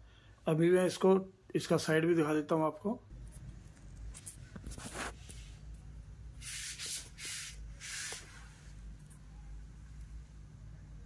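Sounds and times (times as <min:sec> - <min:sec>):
short rubbing scrapes: 0:04.6 - 0:05.6
faint low hum: 0:08.3 - 0:11.0.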